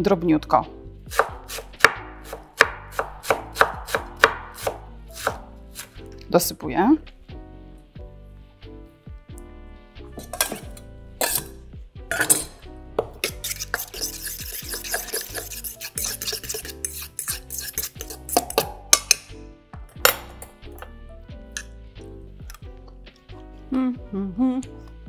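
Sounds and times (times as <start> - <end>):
quiet background music: 0.0 - 25.0
utensil stirring in metal bowl: 10.2 - 11.5, 12.1 - 19.3
knife scraping into metal bowl: 10.2 - 19.3
utensil clinking on steel: 12.1 - 12.6.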